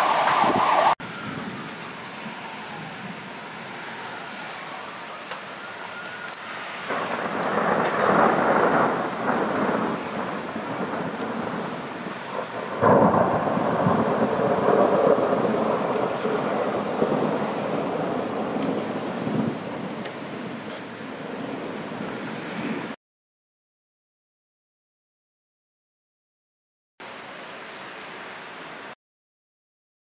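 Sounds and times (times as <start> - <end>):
thunder rolling: 0.0 - 4.2, 6.8 - 23.0.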